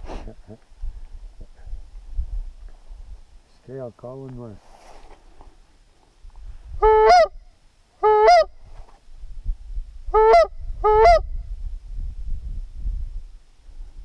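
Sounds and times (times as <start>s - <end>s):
goose call honks: 6.8s - 7.3s, 8.0s - 8.5s, 10.2s - 11.3s.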